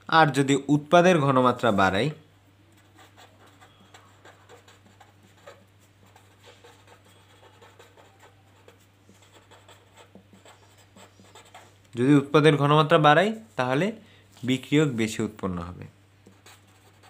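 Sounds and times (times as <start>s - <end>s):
pen scratching on paper: 2.8s - 11.8s, 16.2s - 17.0s.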